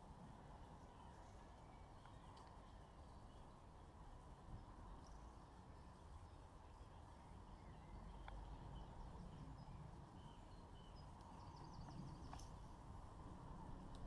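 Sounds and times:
faint low rumble: 0:00.0 - 0:14.0
small birds chirping: 0:00.6 - 0:13.0.

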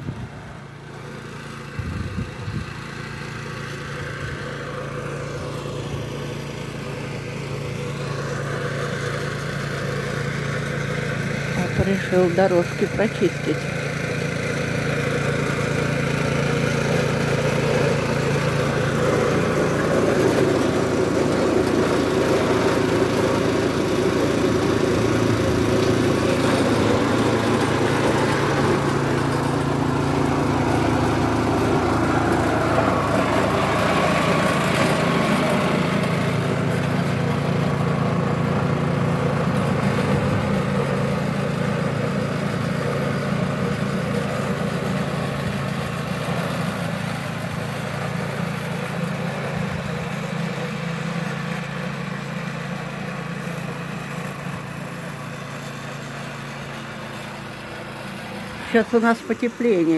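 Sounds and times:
snow blower engine running: 0:00.0 - 0:59.9.

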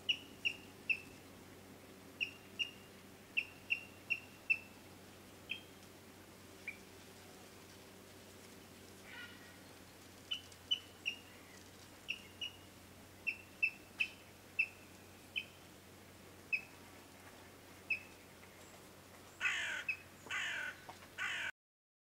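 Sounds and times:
bird chirping: 0:02.2 - 0:04.8, 0:05.4 - 0:05.7, 0:09.2 - 0:15.6, 0:16.5 - 0:16.8, 0:17.9 - 0:20.4
harsh rasping bird calls: 0:02.2 - 0:05.8, 0:09.0 - 0:15.6, 0:19.3 - 0:21.5.

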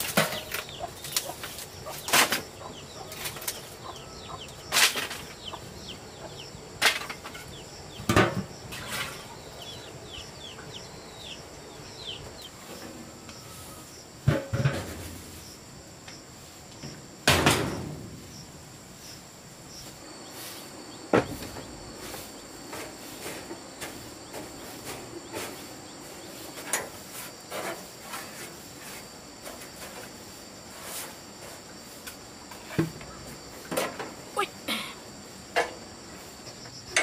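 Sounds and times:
objects knocking and clattering: 0:00.0 - 0:02.5, 0:14.2 - 0:15.0
insects chirring: 0:00.0 - 0:37.0.

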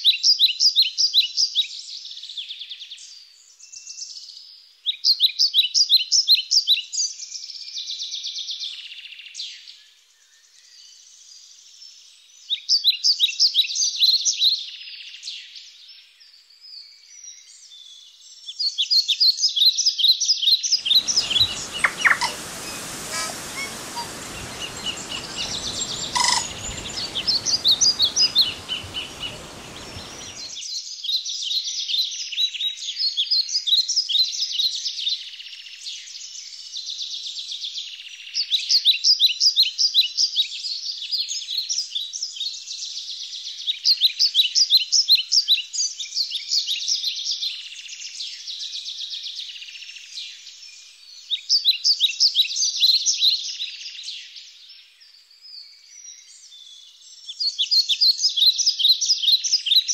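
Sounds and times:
rushing noise: 0:20.8 - 0:30.5
songbirds chirping: 0:20.8 - 0:30.6.

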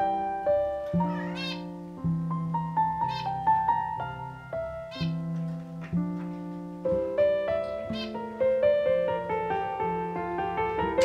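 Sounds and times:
slow solo piano: 0:00.0 - 0:11.0
short high bird calls: 0:04.9 - 0:05.2, 0:07.9 - 0:08.2.

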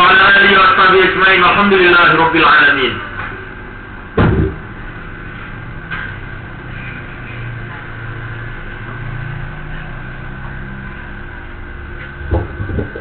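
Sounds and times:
low indistinct rumble: 0:03.2 - 0:13.0
heavy thump: 0:04.2 - 0:04.7, 0:12.2 - 0:13.0.

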